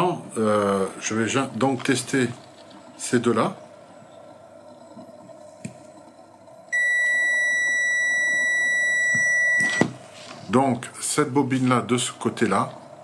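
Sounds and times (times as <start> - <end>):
multimeter high beep: 6.7 - 10.0.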